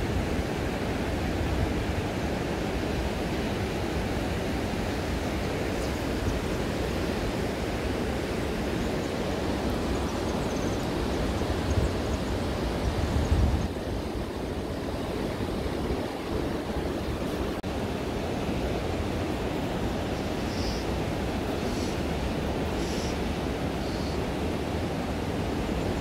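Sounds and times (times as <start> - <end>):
river rushing over stones: 0.0 - 26.0.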